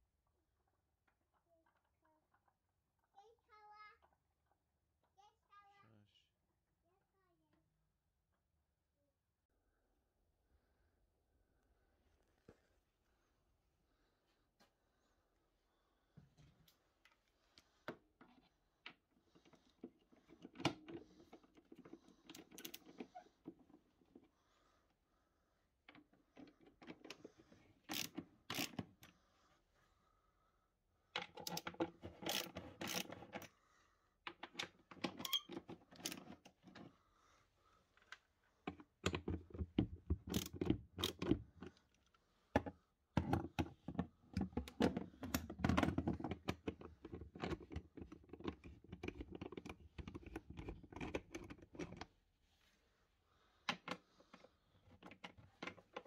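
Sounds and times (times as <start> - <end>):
socket ratchet clicking: 27.9 - 28.8, 32.2 - 33.1, 40.3 - 41.3.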